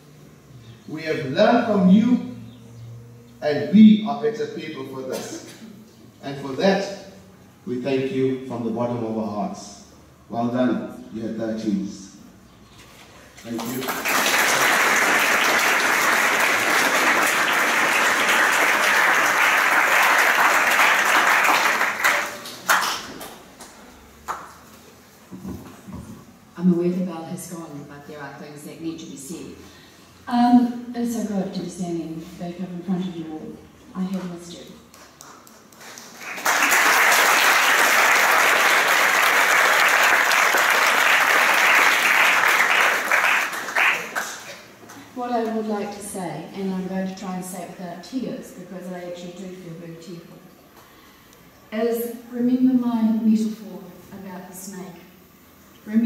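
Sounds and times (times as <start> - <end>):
audience applauding: 13.5 - 24.5, 34.9 - 45.0.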